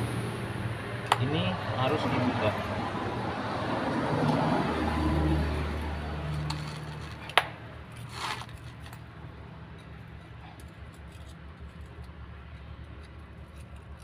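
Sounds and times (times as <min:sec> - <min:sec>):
low engine hum: 0:00.0 - 0:14.0
short metal scrape: 0:08.0 - 0:08.8.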